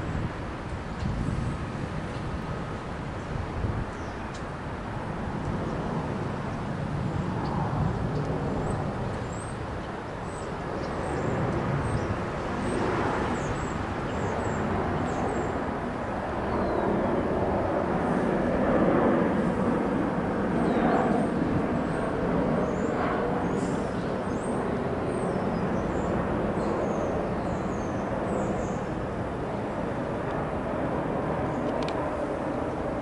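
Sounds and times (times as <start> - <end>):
small birds chirping: 3.2 - 4.5, 6.4 - 15.7, 20.6 - 28.9.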